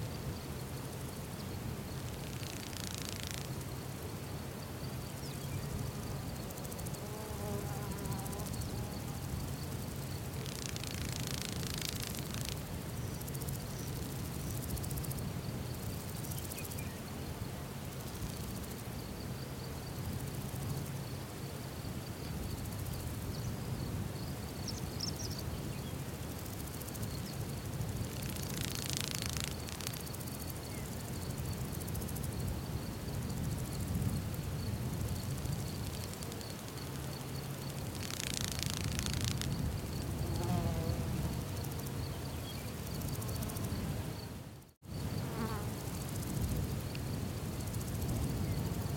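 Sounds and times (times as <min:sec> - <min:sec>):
insects trilling: 0:00.0 - 0:17.3, 0:22.2 - 0:48.9
flying insect buzzing: 0:01.9 - 0:03.8, 0:05.1 - 0:15.0, 0:26.4 - 0:32.2, 0:34.3 - 0:46.6.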